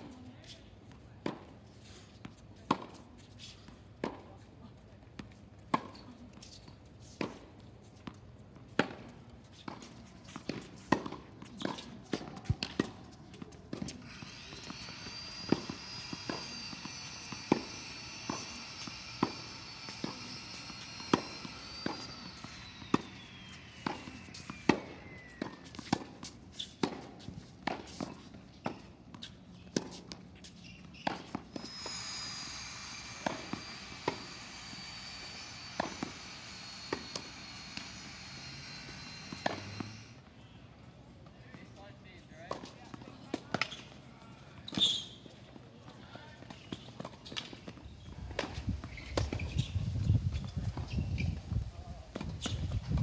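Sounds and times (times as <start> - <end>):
tennis ball struck by rackets: 8.7 - 13.1, 13.7 - 31.7, 32.7 - 39.9
high whine: 14.0 - 25.8, 31.4 - 40.2.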